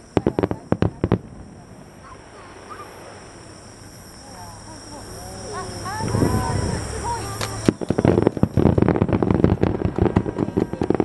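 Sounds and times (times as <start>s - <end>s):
firework bang: 0.0s - 3.6s, 5.9s - 11.0s
fireworks crackling: 0.0s - 11.0s.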